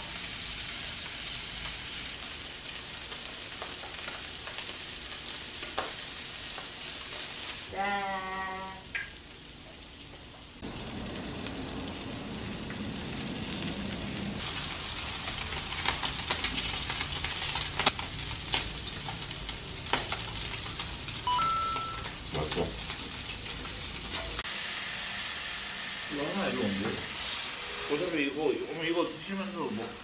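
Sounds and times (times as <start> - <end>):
food sizzling on griddle: 0.0 - 30.0
crackling pops: 15.8 - 20.8
short electronic beep: 21.3 - 22.1.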